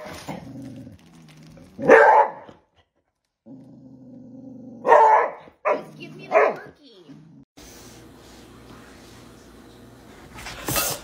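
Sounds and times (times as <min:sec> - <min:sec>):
dog growling low: 0:00.2 - 0:01.9, 0:03.4 - 0:04.8
dog barking: 0:01.8 - 0:02.6, 0:04.8 - 0:06.8.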